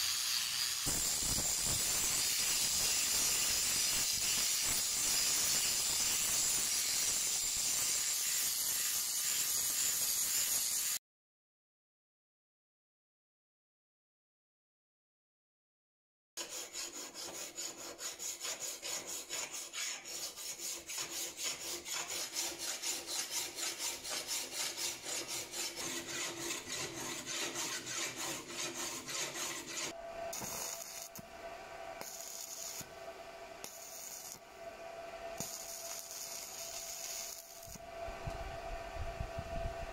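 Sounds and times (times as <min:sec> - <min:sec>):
arc welding crackling hiss: 0:00.0 - 0:11.0, 0:30.3 - 0:31.3, 0:32.0 - 0:33.0, 0:33.6 - 0:34.5, 0:35.4 - 0:37.9
file scraping steel blade: 0:00.0 - 0:11.0, 0:16.4 - 0:31.2, 0:35.4 - 0:37.8.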